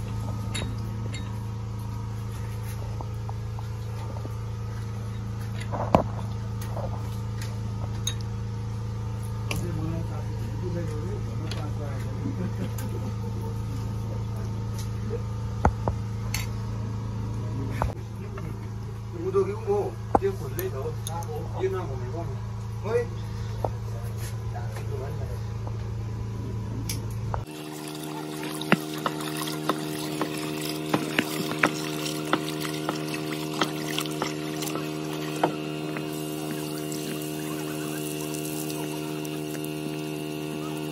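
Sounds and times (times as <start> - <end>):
low mechanical hum: 0.0 - 40.9
rice rubbed and rinsed by hand: 27.5 - 40.9
splashes and clinks: 27.5 - 40.9
water pouring into metal pot: 27.5 - 40.9.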